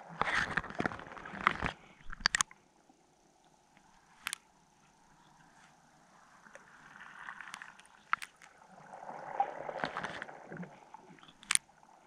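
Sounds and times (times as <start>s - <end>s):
water swishing and gurgling: 0.0s - 12.0s
sharp clicks: 1.4s - 2.6s, 3.7s - 4.5s, 7.5s - 8.5s, 11.2s - 11.7s.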